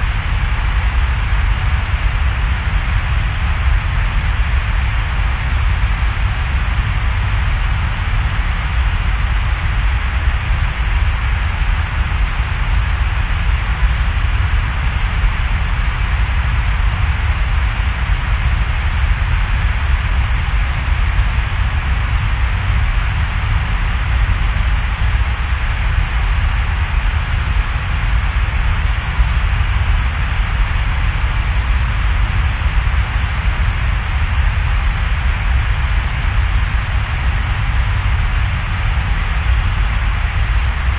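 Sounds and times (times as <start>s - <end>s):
loud rain-like hiss: 0.0s - 40.9s.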